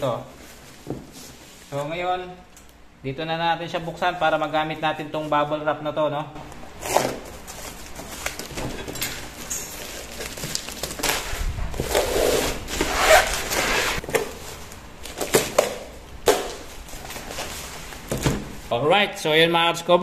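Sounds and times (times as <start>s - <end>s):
bubble wrap crinkling: 6.8s - 8.6s, 9.2s - 18.1s
bubble wrap snapping: 9.7s - 18.1s.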